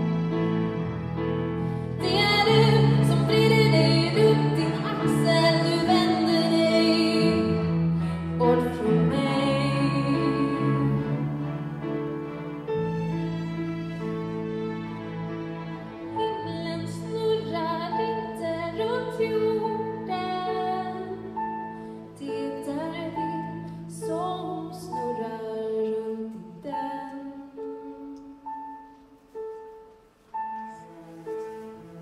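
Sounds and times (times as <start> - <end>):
orchestra playing: 0.0 - 22.2, 29.2 - 32.0
woman singing a ballad: 2.0 - 11.0, 22.2 - 28.4.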